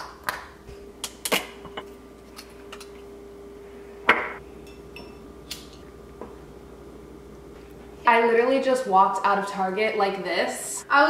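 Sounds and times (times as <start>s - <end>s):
faint steady hum: 0.0s - 11.0s
glass clinking on countertop: 4.1s - 5.2s.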